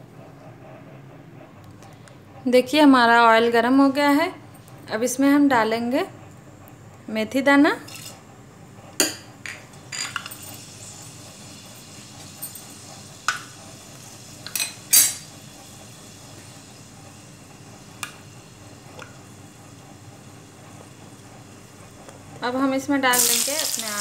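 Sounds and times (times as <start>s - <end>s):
seeds sizzling in hot oil: 23.1s - 24.0s.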